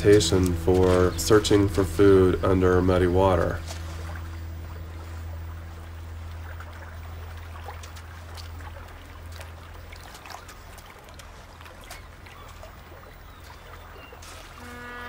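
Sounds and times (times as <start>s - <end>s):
low steady hum: 0.0s - 15.0s
water trickling over pebbles: 0.0s - 15.0s
small splashes and stone clicks: 6.6s - 14.6s.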